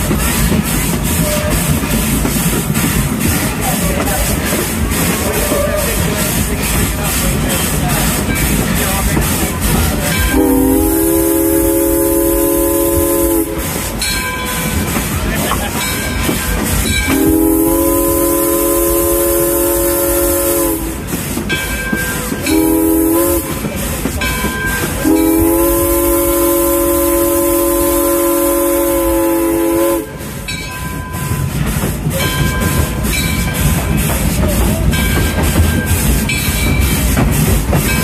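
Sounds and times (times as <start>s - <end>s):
train rumbling on rails: 0.0s - 38.0s
steam locomotive whistle: 10.2s - 14.2s, 17.0s - 21.2s, 22.1s - 23.7s, 24.4s - 30.4s.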